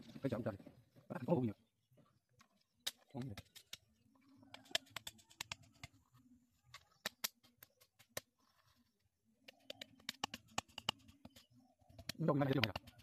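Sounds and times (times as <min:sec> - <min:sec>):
sharp clicks and light taps: 0:04.5 - 0:06.0, 0:09.4 - 0:13.0.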